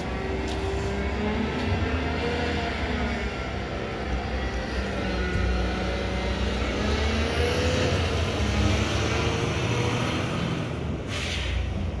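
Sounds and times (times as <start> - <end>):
diesel engine rumbling: 0.0 - 12.0
short air hiss: 11.1 - 11.7.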